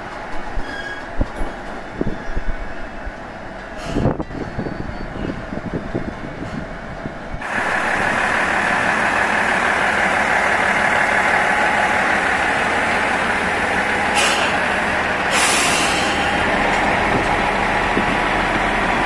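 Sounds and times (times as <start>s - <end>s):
railcar engine idling: 0.0s - 19.0s
compressed air hissing: 14.1s - 14.6s, 15.3s - 16.2s.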